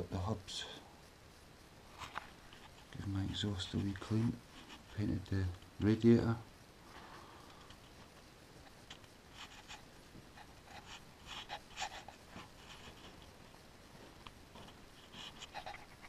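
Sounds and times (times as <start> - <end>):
faint scratchy rustles: 0.6 - 16.0.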